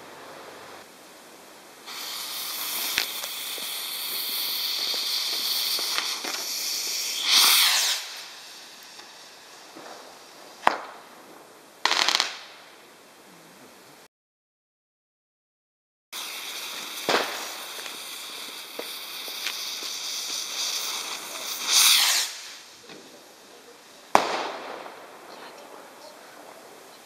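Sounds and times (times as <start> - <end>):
firework crackling: 0.0 - 12.8, 16.1 - 27.0
firework rocket hiss: 0.0 - 12.8, 16.1 - 26.9
firework whoosh: 1.7 - 12.7, 16.2 - 26.3
firework bang: 1.9 - 11.1, 16.2 - 23.2, 24.1 - 25.6.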